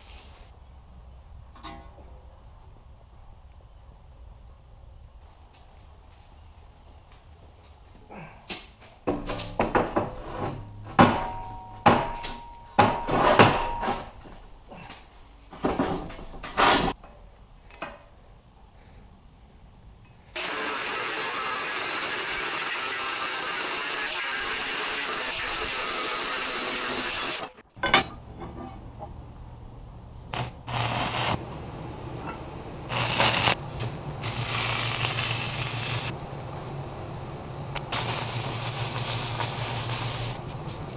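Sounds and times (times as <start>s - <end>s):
steel plate clanking on metal: 1.6s - 2.0s
welding arc hiss: 20.4s - 27.6s, 30.3s - 31.4s, 32.9s - 36.2s, 37.8s - 40.9s
steady low hum: 27.8s - 40.9s.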